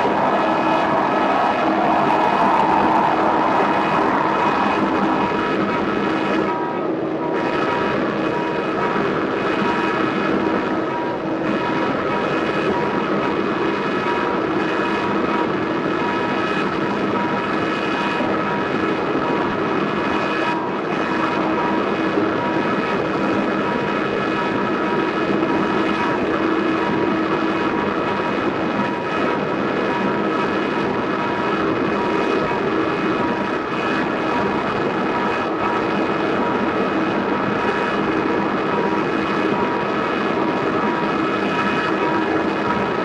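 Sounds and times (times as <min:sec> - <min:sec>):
pulsing high tone: 0:00.0 - 0:06.6
held drone tones: 0:00.0 - 0:08.6
wall of noise: 0:00.0 - 0:43.0.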